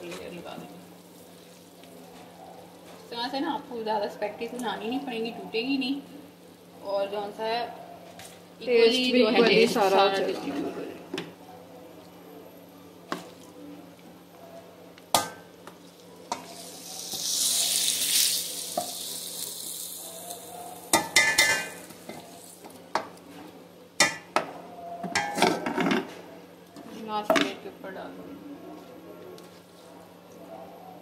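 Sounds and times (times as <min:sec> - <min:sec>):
vegetables sizzling: 0:00.0 - 0:07.7, 0:15.1 - 0:23.0
spoon knocking against pans: 0:20.9 - 0:22.2, 0:24.0 - 0:26.1.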